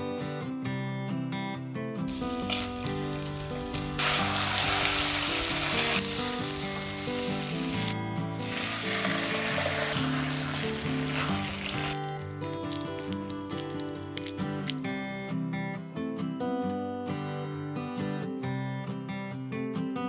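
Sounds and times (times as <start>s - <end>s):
background music: 0.0s - 19.1s
food sizzling in frying pan: 2.1s - 14.8s.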